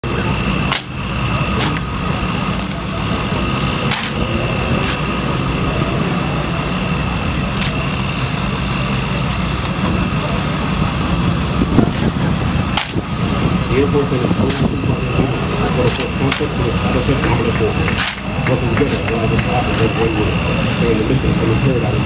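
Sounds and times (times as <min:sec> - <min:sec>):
steady low rumble: 0:00.0 - 0:22.0
rifles slapped and caught: 0:12.8 - 0:13.0, 0:18.0 - 0:18.2.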